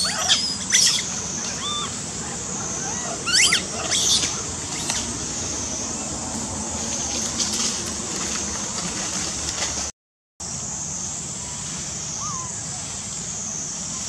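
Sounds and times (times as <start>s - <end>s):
monkey squealing calls: 0.0s - 5.2s, 12.2s - 12.7s
steady high-pitched hiss: 0.0s - 9.6s, 10.4s - 14.0s.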